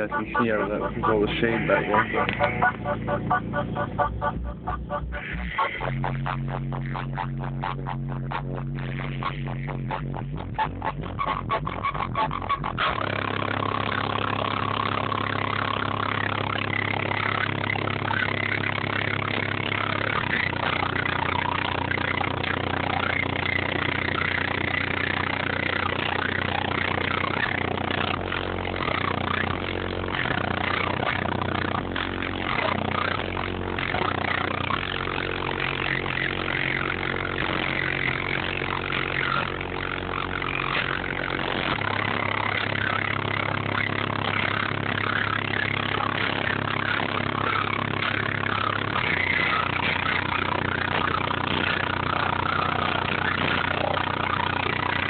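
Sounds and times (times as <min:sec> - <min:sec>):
distorted bass-heavy music: 0:00.0 - 0:55.0.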